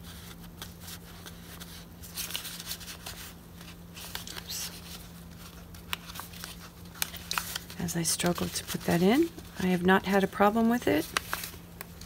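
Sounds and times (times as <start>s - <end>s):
paper rustling and scraping: 0.0s - 12.0s.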